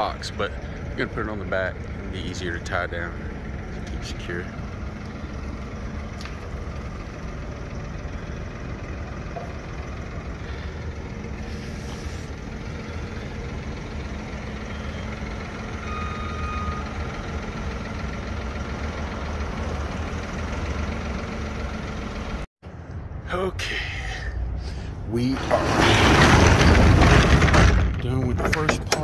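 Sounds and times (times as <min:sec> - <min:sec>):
forklift engine running: 0:00.0 - 0:22.5, 0:24.8 - 0:29.0
short high beep: 0:15.8 - 0:17.0.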